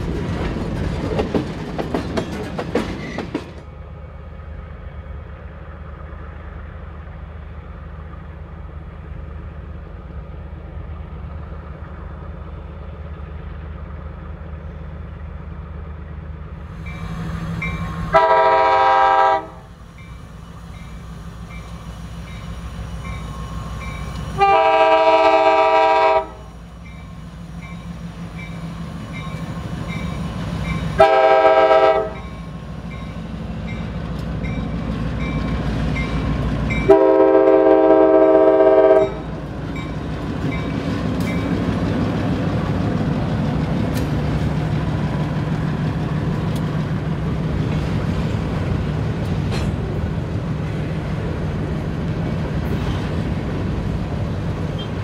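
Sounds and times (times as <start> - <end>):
locomotive diesel engine rumbling: 0.0 - 55.0
locomotive horn blasts: 18.0 - 19.7, 24.4 - 26.5, 31.0 - 32.2, 36.8 - 39.2.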